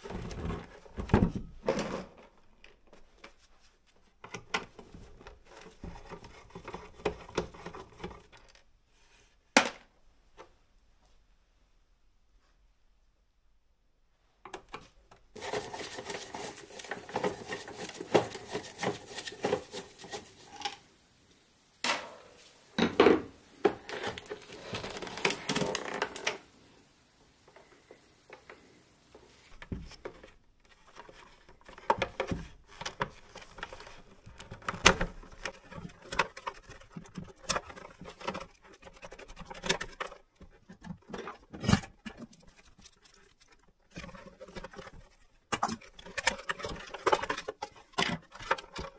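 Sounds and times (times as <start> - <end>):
clicks and knocks of plastic: 4.1 - 8.7, 14.4 - 20.8, 23.6 - 26.5, 27.5 - 48.9
scraping and rattling: 15.4 - 20.8.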